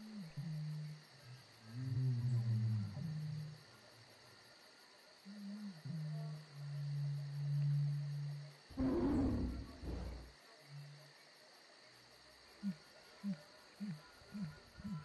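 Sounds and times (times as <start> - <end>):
insect chirring: 0.0 - 15.0
low animal roar: 7.0 - 10.3
short low hoots: 8.7 - 10.3.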